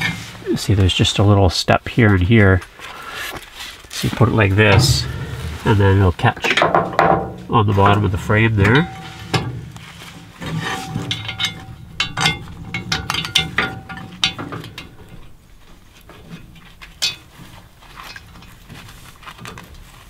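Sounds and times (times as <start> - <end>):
knock on metal: 4.8 - 5.9
metal clicking and clinking: 11.0 - 15.3.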